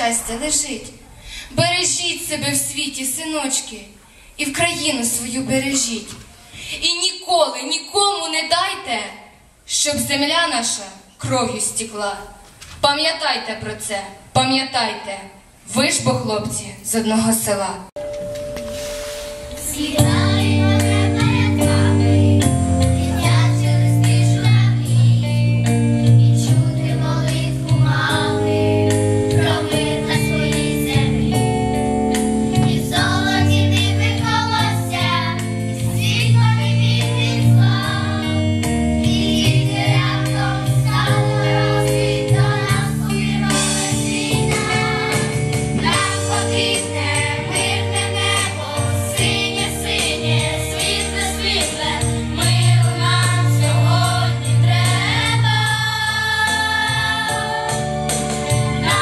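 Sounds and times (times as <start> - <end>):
instrumental accompaniment: 18.0 - 59.0
children's choir singing: 18.6 - 59.0.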